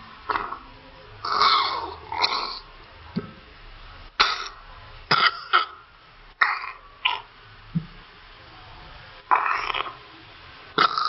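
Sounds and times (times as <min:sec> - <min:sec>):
raspy cough-like bursts: 0:01.3 - 0:02.6, 0:04.2 - 0:07.2.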